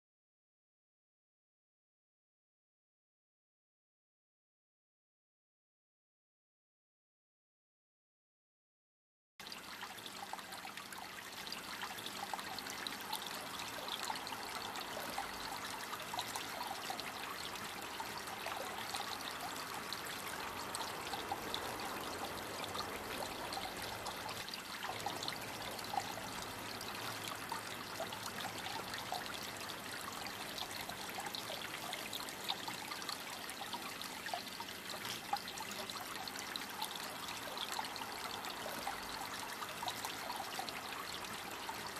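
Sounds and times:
fountain water trickling onto pebbles: 9.4 - 41.9.

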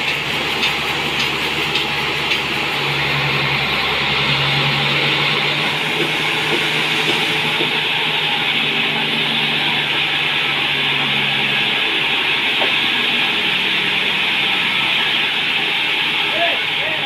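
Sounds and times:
band saw whirring: 0.0 - 17.0.

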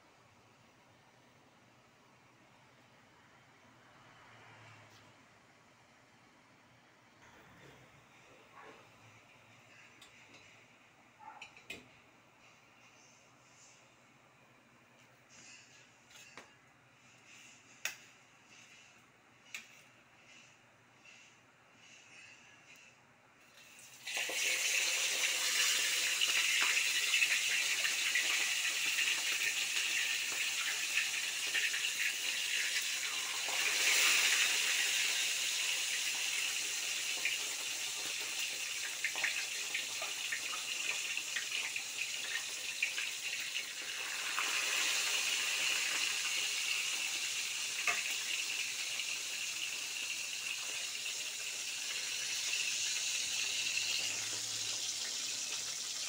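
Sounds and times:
fish sizzling in hot oil: 23.7 - 56.0.

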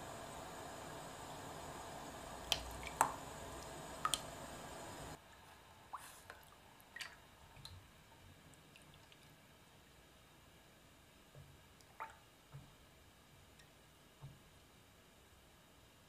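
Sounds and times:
drips falling into liquid: 2.4 - 4.4, 5.9 - 7.8, 11.8 - 12.7.

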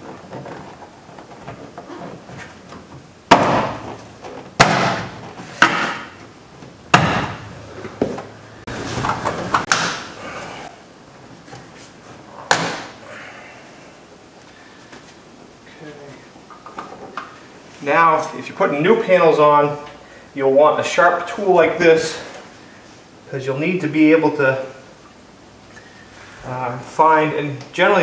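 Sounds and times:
knocks and rustling: 0.0 - 10.2
hand thumping door panel: 6.9 - 8.3.

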